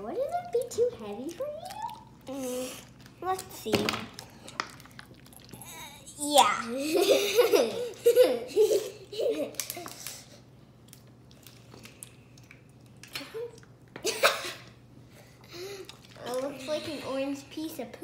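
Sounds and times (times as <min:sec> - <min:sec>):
girls giggling and laughing: 0:06.8 - 0:09.8, 0:14.0 - 0:14.7.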